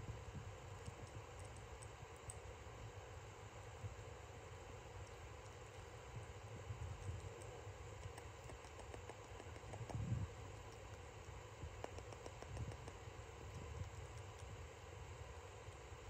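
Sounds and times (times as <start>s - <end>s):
soft small clicks: 0.8s - 2.5s, 7.0s - 14.6s.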